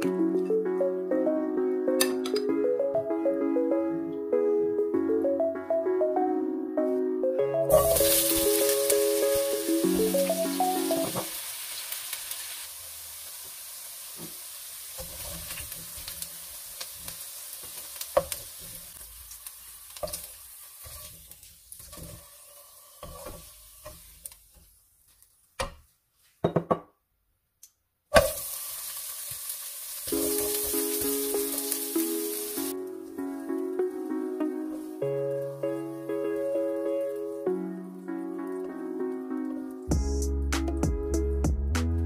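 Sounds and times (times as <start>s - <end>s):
vegetables sizzling in oil: 7.7s - 24.8s, 28.1s - 32.8s
spoon scraping a pan: 20.0s - 24.3s.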